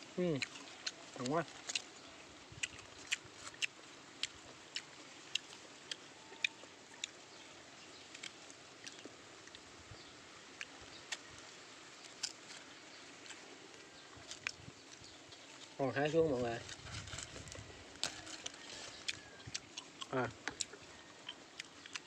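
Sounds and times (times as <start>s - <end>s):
person chewing crunchy fruit: 0.0s - 22.0s.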